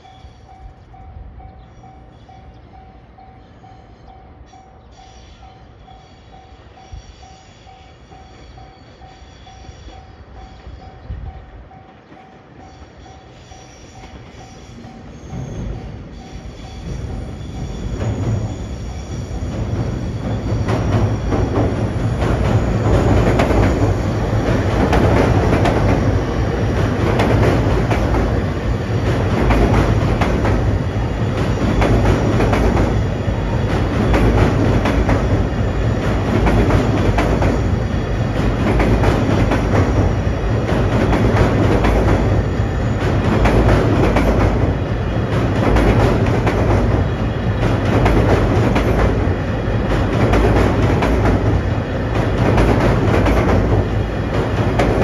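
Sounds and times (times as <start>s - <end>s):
freight train rumbling past: 0.0s - 55.0s
wheels clacking over rail joints: 19.4s - 55.0s.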